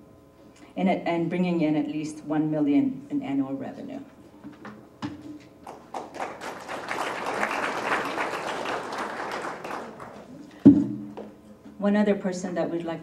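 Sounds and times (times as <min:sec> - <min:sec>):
audience applauding: 0:05.6 - 0:10.5.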